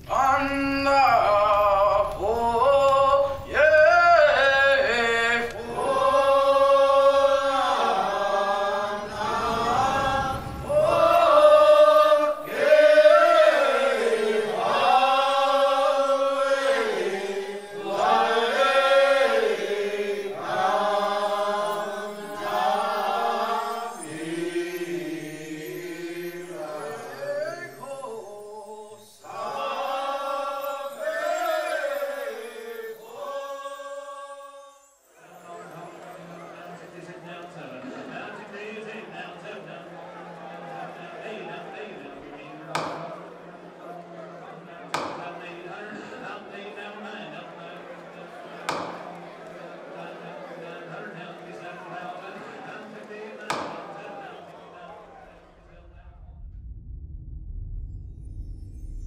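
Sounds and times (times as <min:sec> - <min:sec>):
voices chanting: 0:00.0 - 0:34.4, 0:35.1 - 0:56.0
low rumbling noise: 0:09.0 - 0:12.1, 0:55.4 - 0:59.0.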